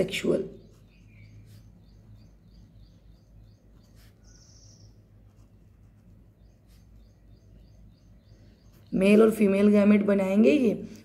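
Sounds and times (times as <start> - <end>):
faint high chirps: 0.5 - 5.4
pen scratching on paper: 0.6 - 7.2.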